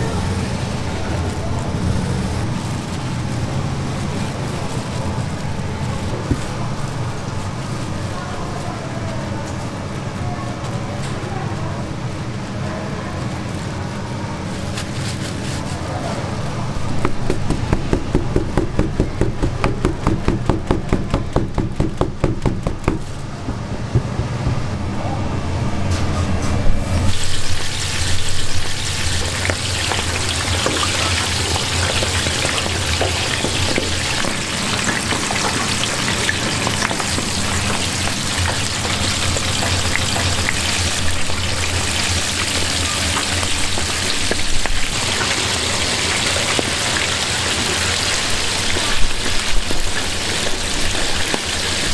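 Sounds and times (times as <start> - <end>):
squid thudding in flour: 17.0 - 24.8
squid sizzling in deep fryer: 27.0 - 51.9.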